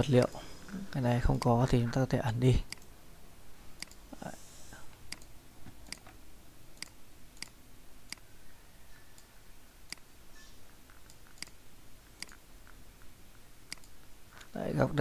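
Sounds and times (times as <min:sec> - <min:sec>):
computer mouse clicking: 0:02.7 - 0:02.9, 0:03.8 - 0:04.0, 0:05.1 - 0:06.2, 0:06.8 - 0:08.2, 0:09.9 - 0:10.1, 0:11.0 - 0:11.6, 0:13.7 - 0:14.0.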